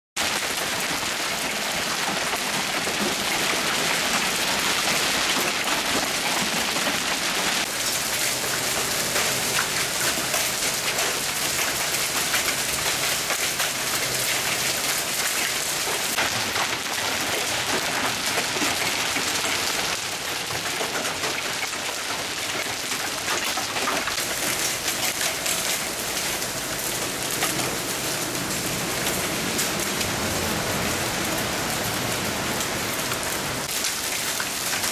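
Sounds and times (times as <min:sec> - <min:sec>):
hail pelting ground and cars: 0:00.2 - 0:34.9.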